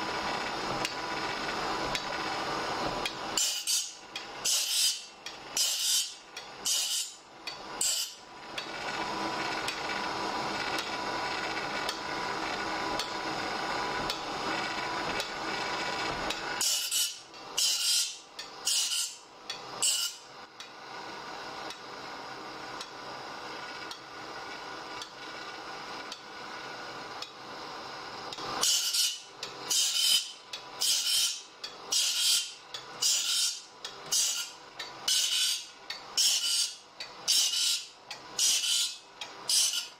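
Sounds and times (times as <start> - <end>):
grinding wheel rasping saw teeth: 3.0 - 7.2, 7.8 - 10.0, 14.1 - 19.2, 28.3 - 39.9.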